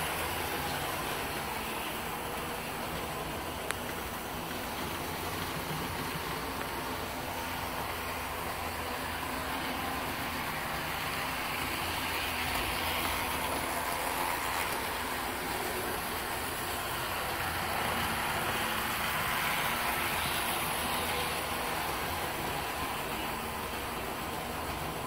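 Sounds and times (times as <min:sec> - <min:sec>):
locomotive motors whirring: 0:00.0 - 0:25.0
model train wheels rumbling on rails: 0:00.0 - 0:25.0.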